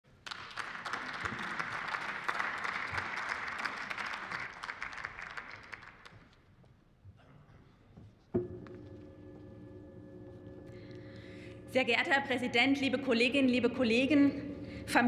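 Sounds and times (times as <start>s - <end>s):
crowd applauding: 0.1s - 6.4s.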